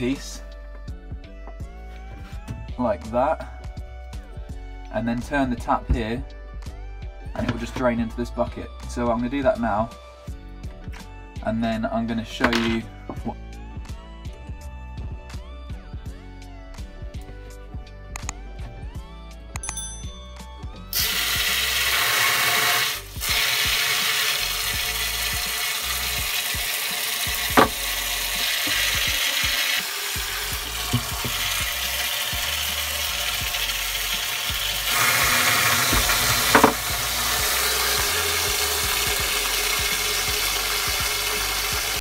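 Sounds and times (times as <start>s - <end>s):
water pouring into a bucket: 21.0s - 42.0s.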